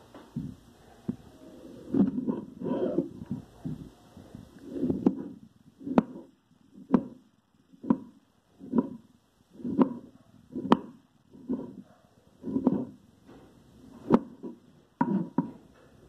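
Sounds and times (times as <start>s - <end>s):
knife chopping on wooden board: 9.6s - 10.0s, 14.0s - 15.5s.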